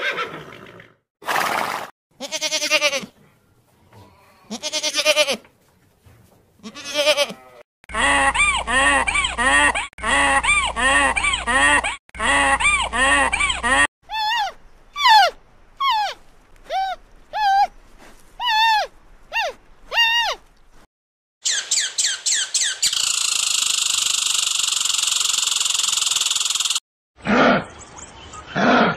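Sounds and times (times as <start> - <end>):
panda bleating: 4.1 - 5.4, 6.6 - 17.7.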